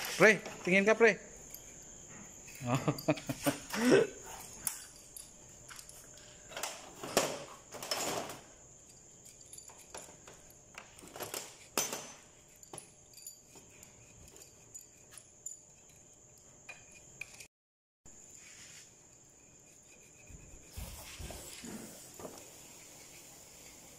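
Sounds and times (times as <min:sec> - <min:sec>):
metal parts clinking on workbench: 0:02.4 - 0:17.5.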